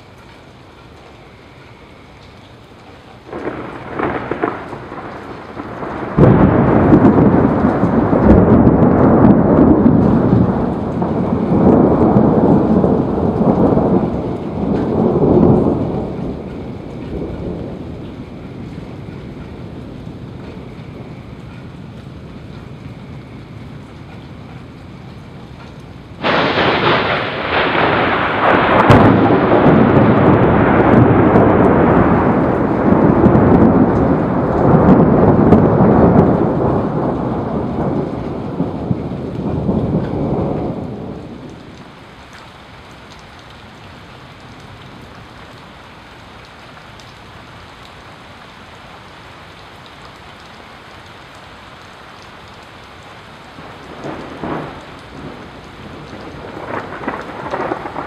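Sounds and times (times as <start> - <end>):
steady rain: 0.0 - 58.0
thunder crack: 3.3 - 20.0, 26.2 - 41.6, 53.6 - 58.0
thunder clap: 3.3 - 21.6, 25.6 - 41.9, 53.6 - 58.0
rolling thunder: 3.3 - 42.0, 53.4 - 58.0.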